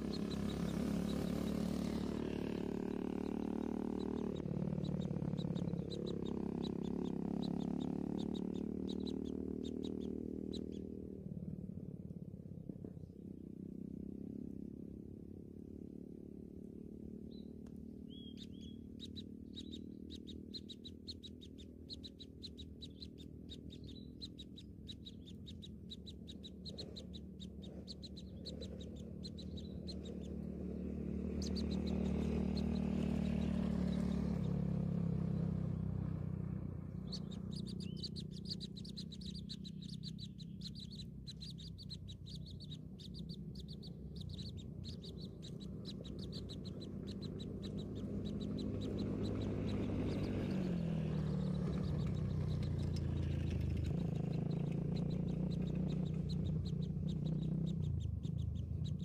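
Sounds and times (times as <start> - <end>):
nestlings cheeping: 18.1 - 34.6, 37.0 - 59.0.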